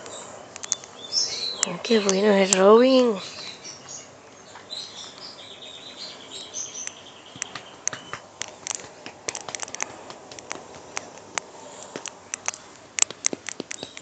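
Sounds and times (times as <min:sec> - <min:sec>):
sharp little clicks: 0:00.5 - 0:01.0, 0:01.6 - 0:03.1, 0:06.8 - 0:14.0.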